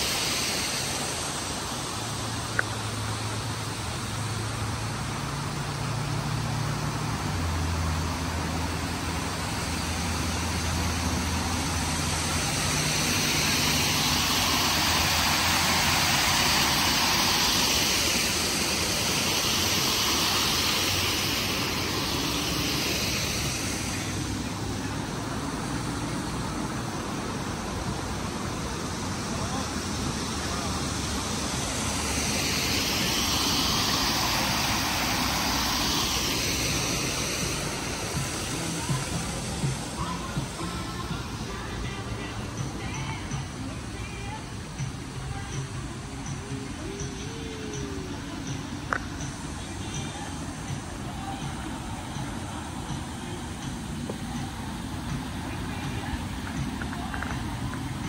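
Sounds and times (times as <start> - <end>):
water pouring over waterfall: 0.0 - 42.2
road traffic hum: 0.0 - 58.0.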